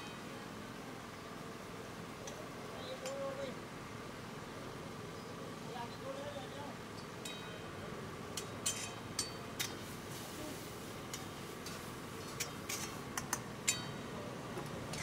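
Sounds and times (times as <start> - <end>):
metal spatula scraping iron pans: 11.7 - 13.0.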